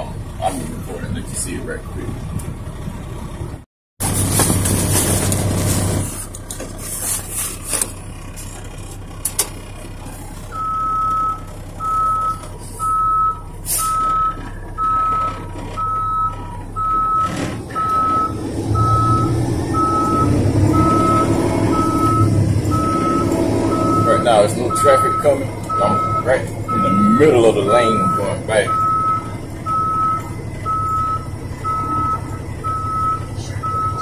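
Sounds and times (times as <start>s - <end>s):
diesel truck engine running: 0.0s - 34.0s
truck backup alarm beeping: 9.5s - 34.0s.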